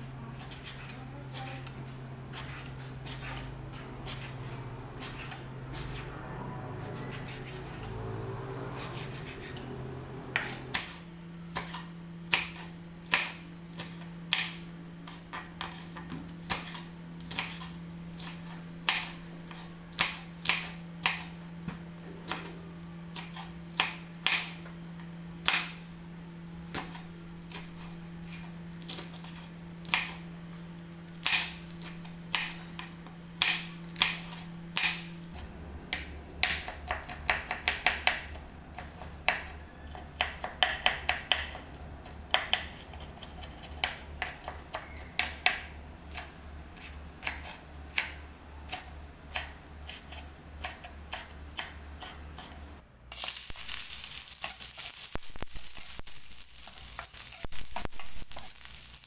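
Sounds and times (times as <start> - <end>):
fast knife chopping: 0.4 - 6.1, 8.7 - 9.7, 36.4 - 39.5
sizzling in a hot wok: 53.1 - 59.0.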